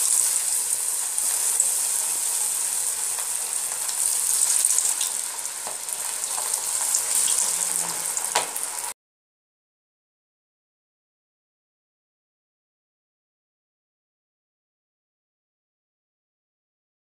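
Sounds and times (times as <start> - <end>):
oil popping and crackling: 0.0 - 8.9
chicken deep-frying in oil: 0.0 - 9.0.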